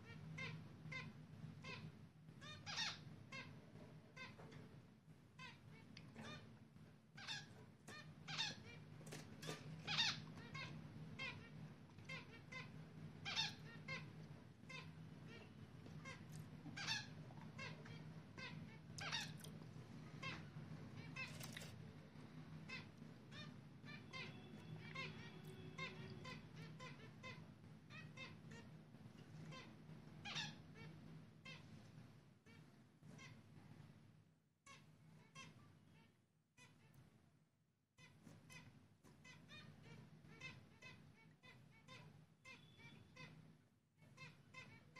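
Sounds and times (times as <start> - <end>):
faint steady hum: 0.0 - 36.1
finches squeaky calls: 0.4 - 3.5, 7.2 - 8.8, 9.4 - 11.5, 12.1 - 14.1, 16.8 - 19.5
finches giving nasal calls: 2.4 - 3.5, 12.1 - 14.1, 18.4 - 19.4.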